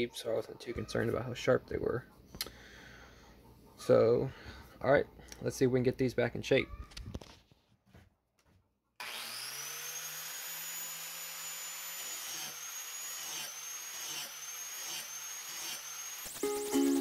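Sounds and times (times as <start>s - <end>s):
angle grinder grinding metal: 9.0s - 17.0s.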